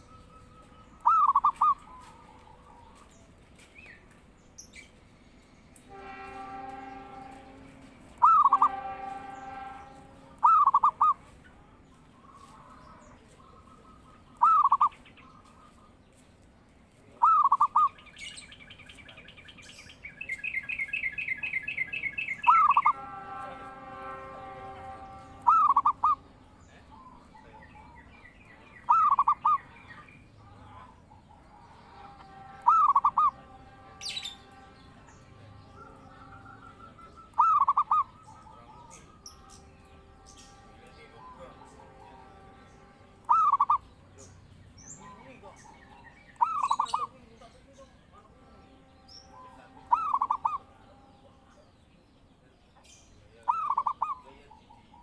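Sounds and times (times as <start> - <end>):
dove cooing: 0.0 - 3.0, 8.2 - 8.8, 10.4 - 11.2, 13.5 - 15.0, 17.2 - 18.0, 25.4 - 26.2, 28.9 - 29.8, 32.6 - 33.5, 35.8 - 39.2, 43.3 - 43.8, 46.4 - 47.1, 49.8 - 50.7, 53.4 - 55.0
bird rapid high trill: 8.2 - 11.2, 24.9 - 26.3, 32.0 - 34.6, 35.8 - 40.6, 42.8 - 43.9, 49.8 - 50.7.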